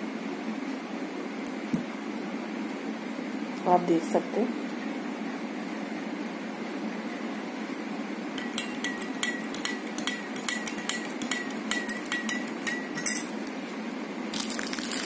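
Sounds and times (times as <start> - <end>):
steady low hum: 0.0 - 15.0
spoon clinking against glass: 8.4 - 13.5.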